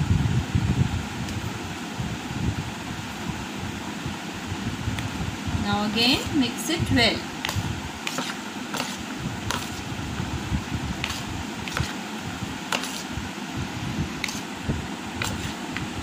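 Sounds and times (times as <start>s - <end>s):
spoon stirring fruit in a bowl: 7.4s - 9.9s, 11.0s - 13.2s, 14.2s - 16.0s.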